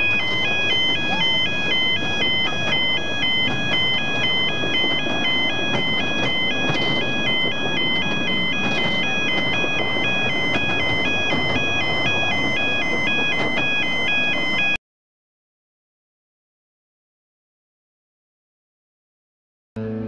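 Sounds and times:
level crossing two-tone alarm: 0:00.0 - 0:14.8
train carriages rumbling: 0:00.0 - 0:14.8.

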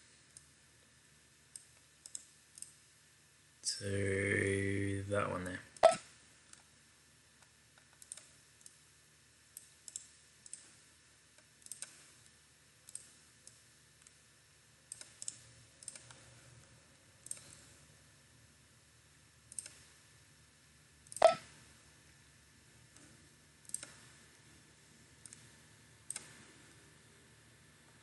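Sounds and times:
faint steady hiss: 0:00.0 - 0:28.0
computer mouse clicking: 0:01.5 - 0:02.8, 0:07.8 - 0:08.8, 0:09.5 - 0:10.8, 0:11.4 - 0:14.2, 0:14.9 - 0:16.3, 0:17.2 - 0:17.8, 0:19.5 - 0:20.0, 0:21.0 - 0:21.5, 0:22.9 - 0:24.2, 0:25.2 - 0:26.8.

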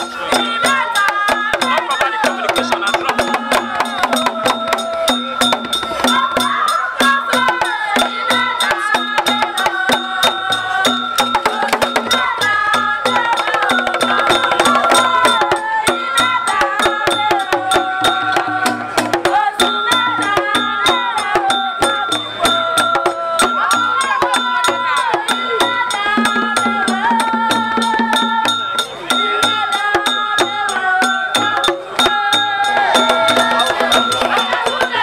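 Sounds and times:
hand drums: 0:00.0 - 0:35.0
voices singing: 0:00.0 - 0:35.0.

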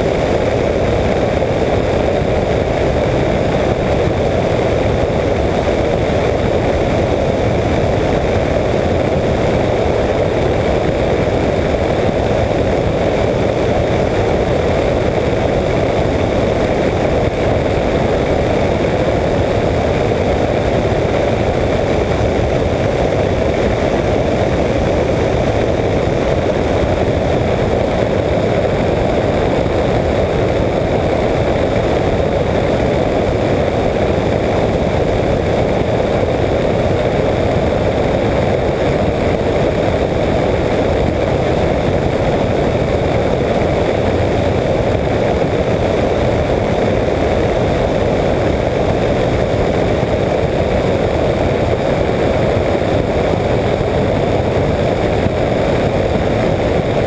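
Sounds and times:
engine and propeller drone: 0:00.0 - 0:57.0
wind noise on microphone: 0:00.0 - 0:57.0.

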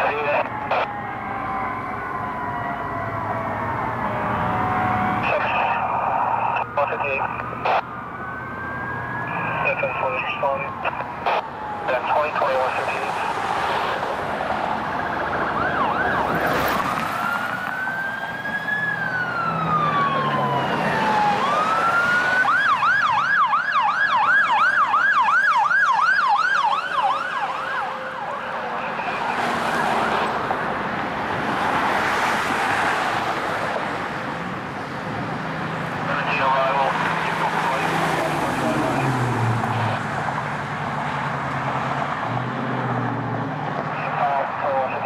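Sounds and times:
electronic siren wailing and yelping: 0:00.0 - 0:30.7
passing traffic: 0:00.0 - 0:45.0.

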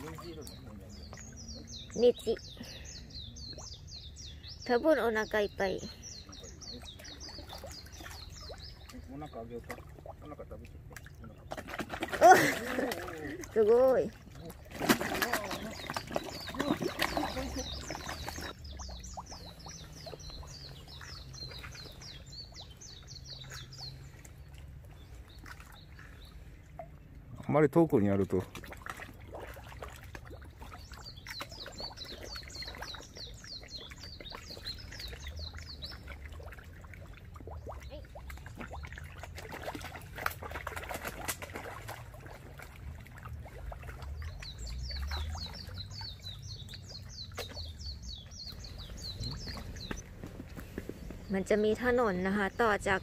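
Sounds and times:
bird chirping: 0:00.0 - 0:09.6, 0:15.4 - 0:26.6, 0:30.8 - 0:36.2, 0:44.1 - 0:53.0
songbird singing: 0:00.0 - 0:28.5, 0:29.8 - 0:41.6, 0:42.6 - 0:53.0
fish splashing in water: 0:06.1 - 0:27.0, 0:28.2 - 0:51.3.

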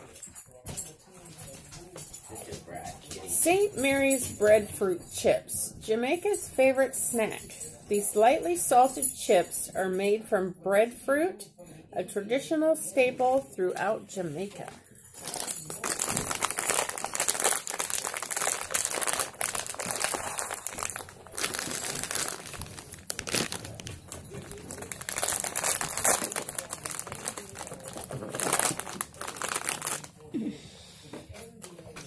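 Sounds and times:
chip bag crinkling: 0:15.1 - 0:30.3.

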